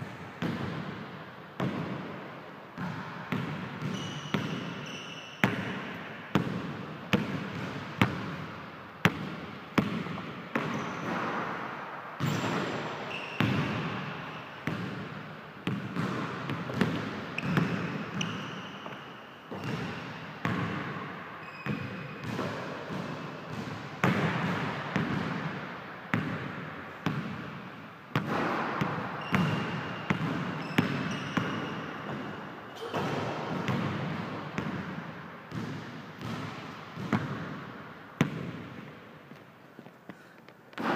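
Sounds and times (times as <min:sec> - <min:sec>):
basketball bouncing on hardwood floor: 0:02.8 - 0:05.8, 0:09.0 - 0:11.3, 0:15.7 - 0:20.9, 0:21.6 - 0:25.4, 0:28.2 - 0:32.3, 0:33.1 - 0:38.8
sneakers squeaking on wood: 0:03.8 - 0:05.5, 0:10.6 - 0:11.1, 0:12.2 - 0:13.6, 0:17.4 - 0:19.9, 0:29.2 - 0:33.2.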